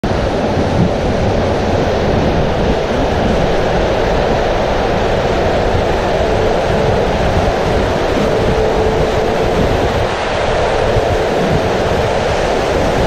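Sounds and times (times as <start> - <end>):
raft sliding along flume: 0.0 - 13.0
rushing water in slide tube: 0.0 - 13.0.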